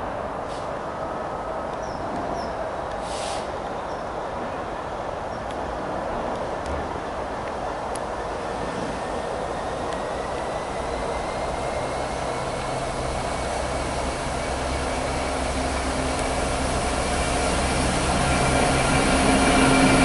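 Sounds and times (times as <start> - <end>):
diesel locomotive engine drone: 0.0 - 20.0
train rushing on rails: 0.0 - 20.0.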